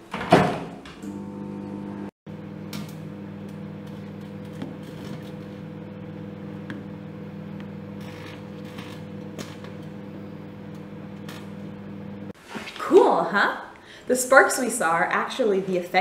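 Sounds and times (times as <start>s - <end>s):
microwave oven humming: 1.0s - 12.4s.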